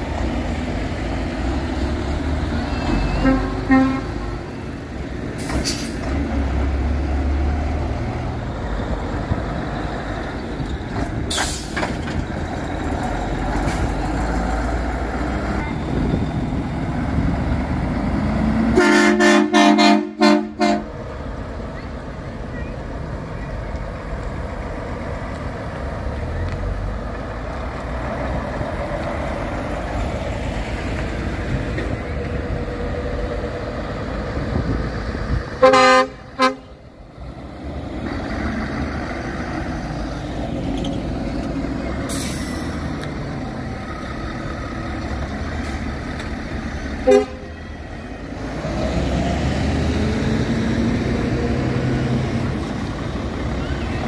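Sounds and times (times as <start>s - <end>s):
diesel truck engines: 0.0s - 54.0s
truck horn blast: 2.7s - 4.4s, 18.7s - 21.0s, 35.6s - 36.8s, 47.0s - 47.6s.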